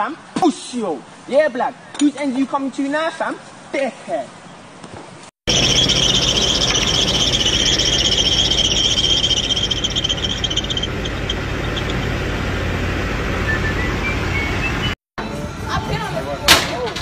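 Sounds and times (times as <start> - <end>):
drive belt squealing: 5.5 - 15.0
engine running: 5.5 - 15.0.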